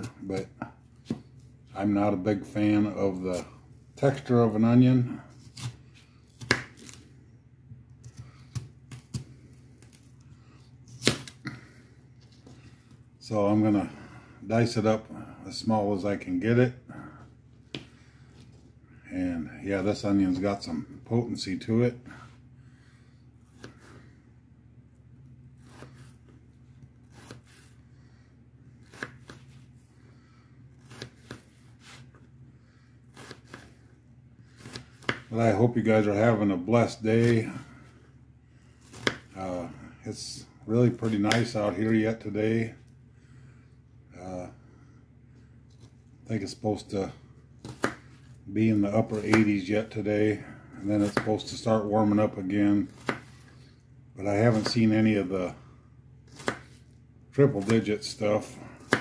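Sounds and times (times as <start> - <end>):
knife cutting onion: 0.0 - 7.0, 10.9 - 11.5, 25.6 - 26.3, 27.0 - 27.8, 28.8 - 29.6, 30.7 - 32.1, 33.1 - 33.8, 34.4 - 37.8, 38.8 - 39.7, 40.8 - 42.1, 47.6 - 50.0, 50.8 - 53.6, 54.3 - 55.2, 56.3 - 59.0.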